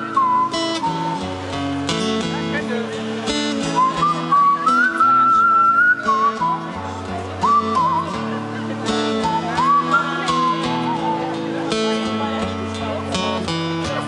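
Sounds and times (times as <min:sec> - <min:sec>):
person whistling a tune: 0:00.0 - 0:01.3, 0:03.8 - 0:06.8, 0:07.4 - 0:08.2, 0:09.2 - 0:11.4
acoustic guitar strumming: 0:00.0 - 0:14.0
live band playing: 0:00.0 - 0:14.0.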